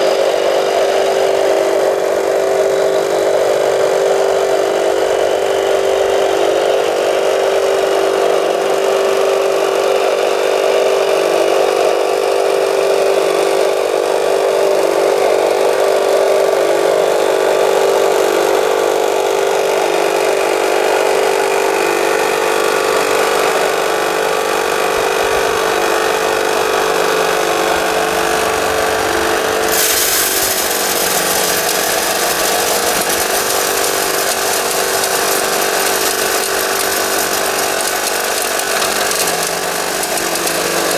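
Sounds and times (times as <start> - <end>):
model loader motors whining: 18.1 - 40.9
vibrating screen rattling hiss: 29.7 - 40.9.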